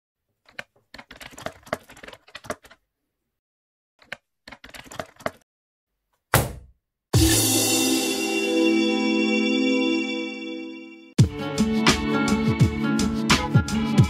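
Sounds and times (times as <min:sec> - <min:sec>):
sharp thump: 0:06.3 - 0:06.8.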